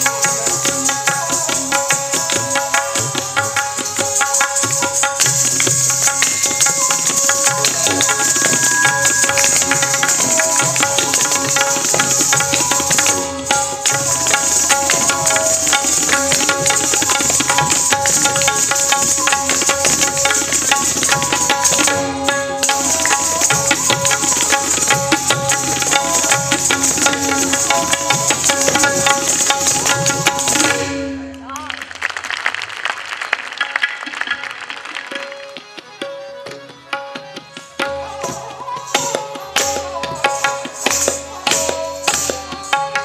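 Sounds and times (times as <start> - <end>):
held melodic accompaniment: 0.0 - 31.7
tabla playing fast strokes: 0.0 - 43.0.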